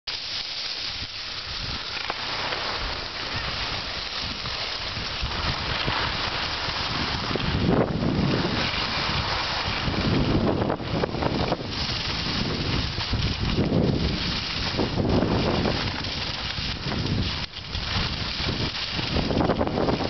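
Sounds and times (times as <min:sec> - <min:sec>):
skis sliding on snow: 0:00.1 - 0:20.0
wind rushing over microphone: 0:00.9 - 0:20.0.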